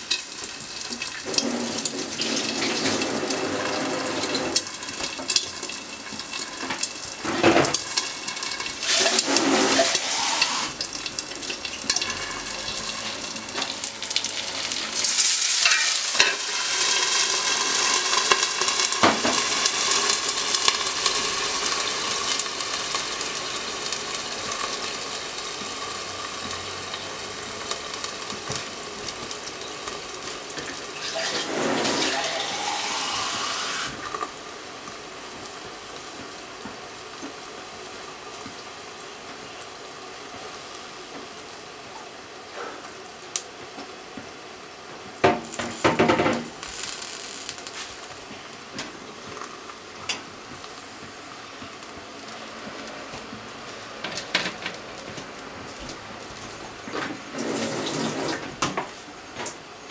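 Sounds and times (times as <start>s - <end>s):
food sizzling in a pan: 0.0s - 59.9s.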